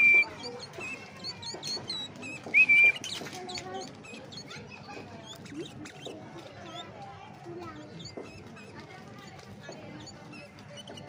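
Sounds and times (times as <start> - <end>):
bird whistled call: 0.0 - 4.6
soft high chirps: 0.0 - 7.0.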